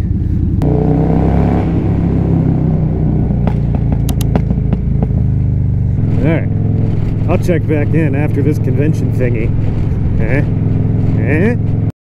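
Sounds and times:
motorcycle engine running: 0.0s - 11.9s
sharp clicks: 3.5s - 5.1s.

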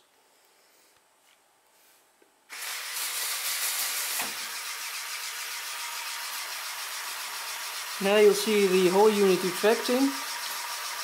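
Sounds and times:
compressor whirring: 2.5s - 11.0s.

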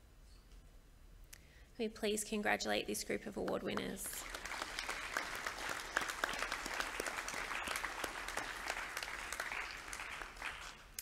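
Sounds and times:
audience clapping: 3.4s - 11.0s.

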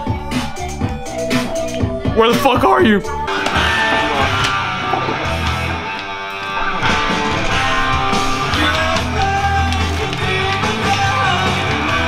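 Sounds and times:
music with guitar and bass: 0.0s - 12.0s.

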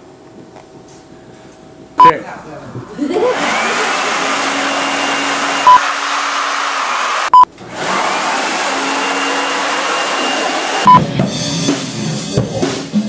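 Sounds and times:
electric blower motor whine: 2.8s - 11.0s.

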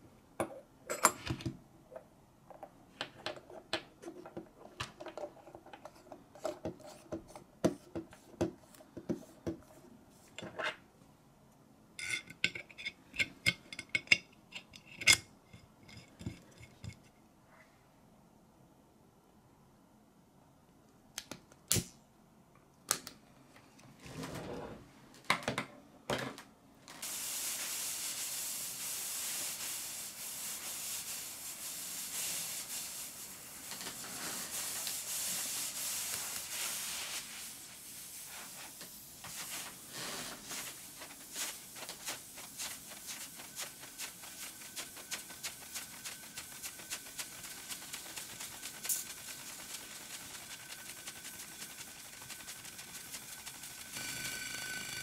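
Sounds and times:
steam hissing: 27.0s - 55.0s.

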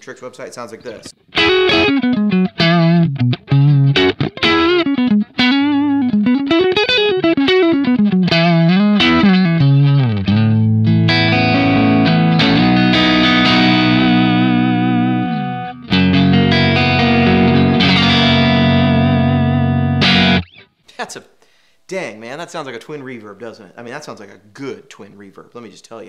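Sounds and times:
clean electric guitar: 1.0s - 20.8s.

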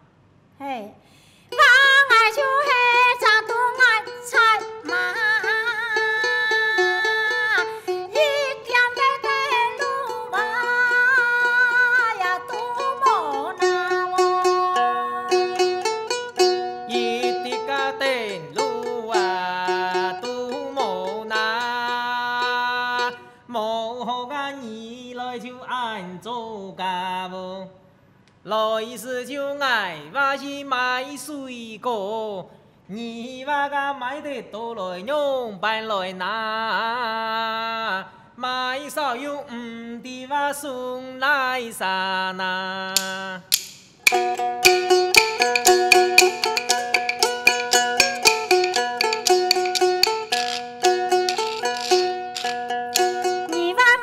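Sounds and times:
woman singing: 1.5s - 15.6s, 16.9s - 26.1s, 51.5s - 54.0s
plucked lute: 1.5s - 23.3s, 43.0s - 54.0s
man singing: 16.8s - 27.7s, 28.4s - 43.6s
bamboo clappers clicking: 43.0s - 53.6s.

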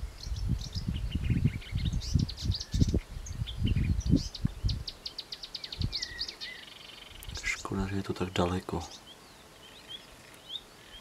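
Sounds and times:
wind buffeting microphone: 0.0s - 5.0s, 5.6s - 6.3s
small birds chirping and singing: 0.0s - 11.0s.

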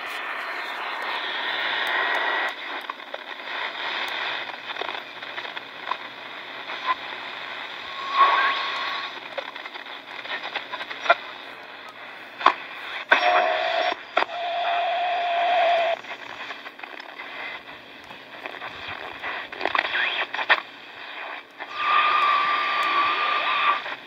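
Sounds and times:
radio clicks: 0.0s - 14.8s, 15.4s - 24.0s
radio static hiss and crackle: 0.0s - 24.0s
radio whistle: 7.8s - 9.2s, 13.0s - 16.5s, 19.7s - 24.0s.

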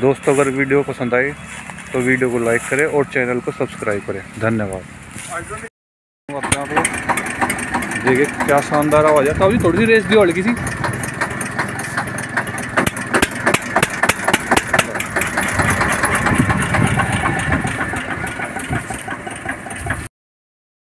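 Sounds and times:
tractor diesel engine knocking: 6.3s - 20.1s.

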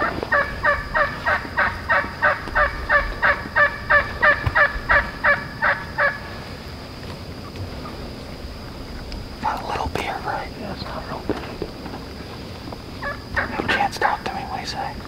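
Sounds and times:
hen turkey yelps: 0.3s - 6.2s.

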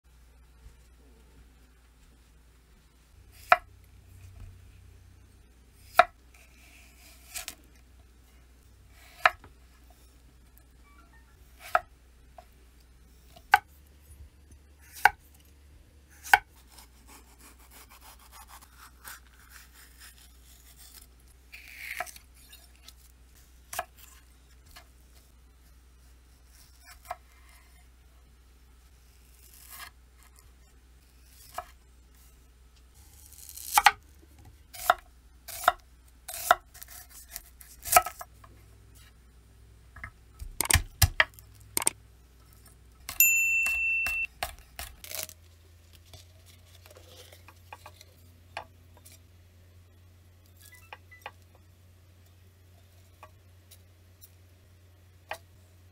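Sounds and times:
knife chopping on wooden board: 40.4s - 42.0s
short high ding: 43.1s - 44.3s.

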